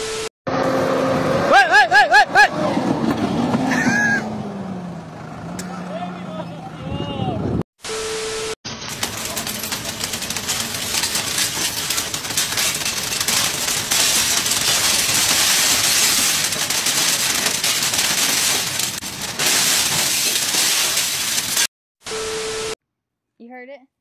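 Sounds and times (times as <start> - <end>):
sheet glass cracking and splintering: 8.7 - 21.7.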